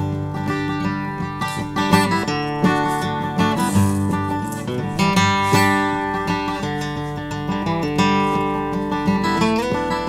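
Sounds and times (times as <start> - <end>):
acoustic guitar strumming chords: 0.0 - 10.0.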